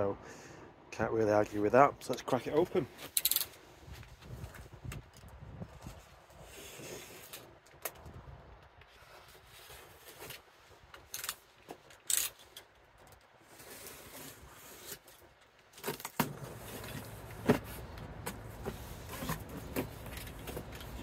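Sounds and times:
wind rumble on microphone: 0:03.8 - 0:07.2, 0:07.8 - 0:10.1
cardboard box being handled: 0:16.1 - 0:21.0.

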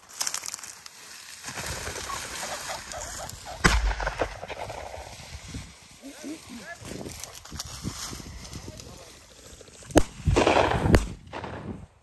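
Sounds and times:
dog rustling through reeds: 0:00.0 - 0:03.7, 0:04.7 - 0:09.9
pheasant cackling calls: 0:01.7 - 0:04.4
loud shotgun shot: 0:03.6 - 0:05.2, 0:10.0 - 0:11.8.

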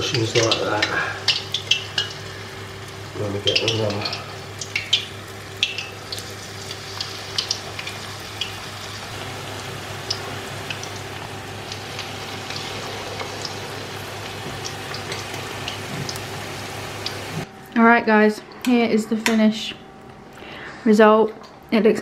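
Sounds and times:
food deep-frying in oil: 0:00.0 - 0:17.5
low steady hum: 0:00.0 - 0:22.0.

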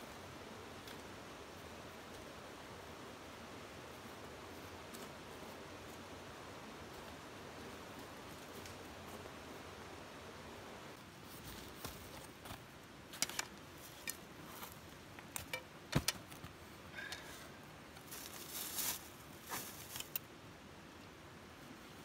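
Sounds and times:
twine rustling scratch: 0:18.1 - 0:20.1.

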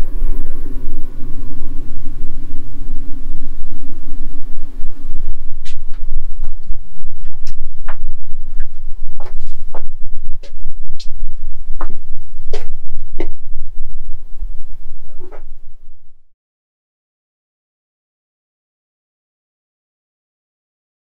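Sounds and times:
low rumble: 0:00.0 - 0:16.3.

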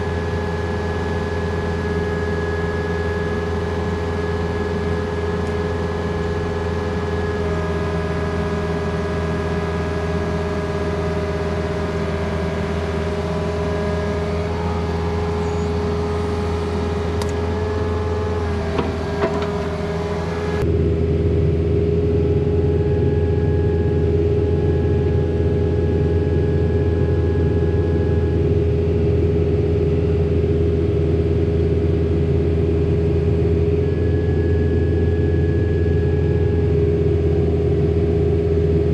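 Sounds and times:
hydraulic whine: 0:00.0 - 0:20.7
excavator diesel engine running: 0:00.0 - 0:20.8.

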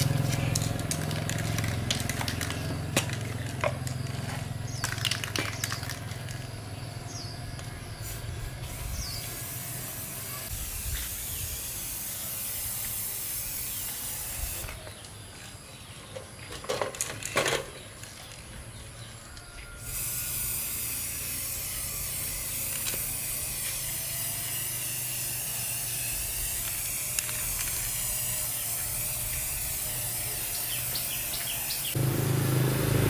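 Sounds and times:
spray can rattling: 0:00.0 - 0:04.0, 0:04.7 - 0:06.6, 0:08.0 - 0:14.8, 0:19.9 - 0:31.3
spray can hissing: 0:08.0 - 0:14.8, 0:19.9 - 0:32.7.

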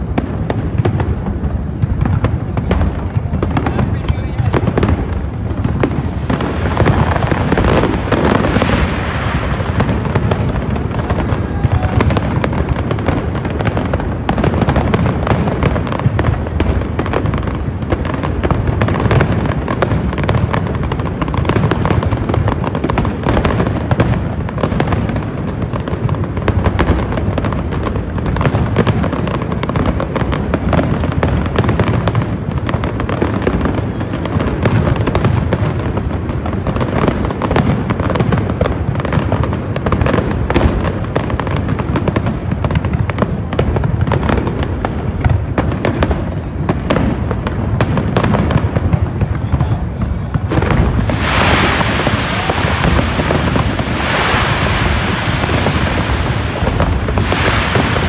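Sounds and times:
fireworks bursting and banging: 0:00.0 - 0:58.0.

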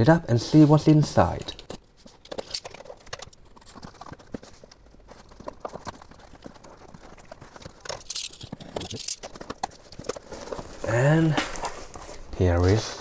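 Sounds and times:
scratchy hiss: 0:00.0 - 0:01.7
cardboard rustling: 0:00.3 - 0:13.0.

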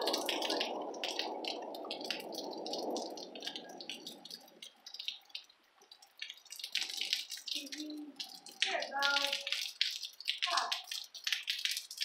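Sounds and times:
thunder rumbling: 0:00.0 - 0:05.0.

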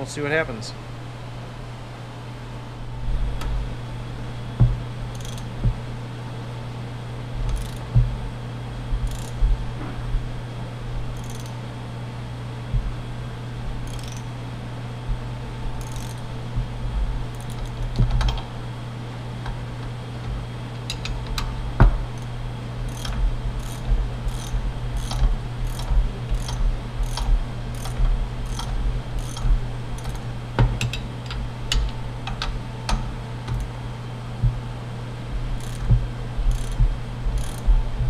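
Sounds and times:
ratcheting wrench clicking: 0:05.1 - 0:05.5, 0:07.5 - 0:07.8, 0:09.1 - 0:09.4, 0:11.2 - 0:11.6, 0:13.8 - 0:14.3, 0:15.8 - 0:16.2, 0:17.4 - 0:18.4, 0:22.9 - 0:30.2, 0:35.6 - 0:35.9, 0:36.5 - 0:36.8, 0:37.4 - 0:37.6.

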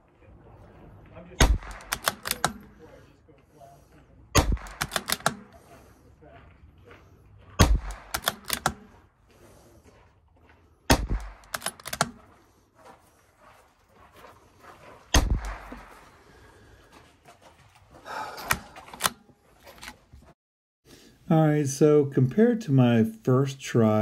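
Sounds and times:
rifle bolt clicks: 0:01.4 - 0:02.7, 0:04.4 - 0:05.6, 0:07.6 - 0:08.9, 0:10.9 - 0:12.2, 0:18.4 - 0:20.0
rifle shots: 0:01.4 - 0:02.8, 0:04.3 - 0:05.7, 0:07.6 - 0:09.0, 0:10.9 - 0:12.2, 0:15.1 - 0:16.2.

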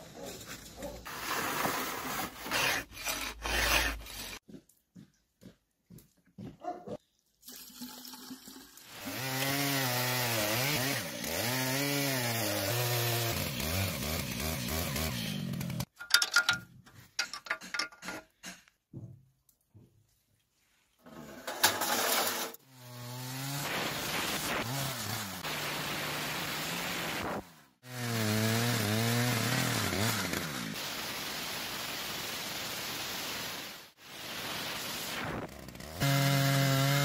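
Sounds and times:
chainsaw cutting log: 0:02.4 - 0:04.4, 0:09.0 - 0:15.9, 0:21.8 - 0:30.9, 0:35.0 - 0:37.0.

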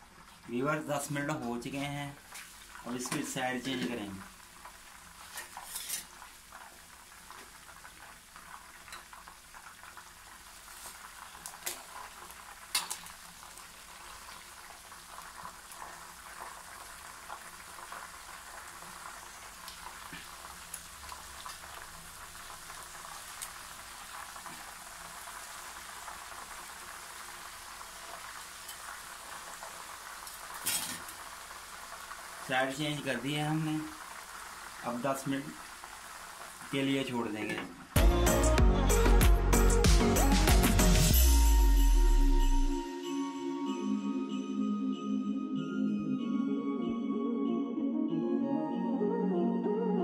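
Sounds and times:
deep-frying sizzle: 0:00.0 - 0:38.3
metal tongs clicking on pan: 0:12.7 - 0:13.0.

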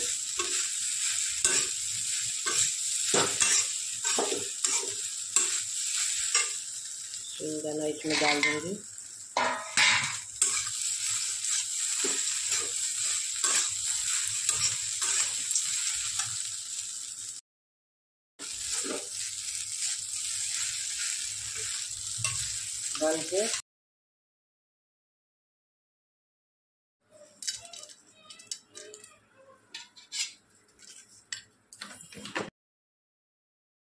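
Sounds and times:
metal spatula scraping pan: 0:00.0 - 0:06.6, 0:08.0 - 0:08.7, 0:09.6 - 0:16.3, 0:29.7 - 0:31.3
rice sizzling in a pan: 0:00.0 - 0:17.4, 0:18.4 - 0:23.6
spoon clinking on steel plate: 0:03.3 - 0:05.6.

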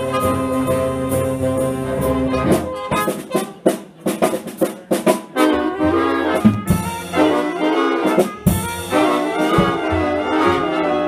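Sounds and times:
big band playing: 0:00.0 - 0:11.0
brass section sustained chords: 0:05.4 - 0:11.0.

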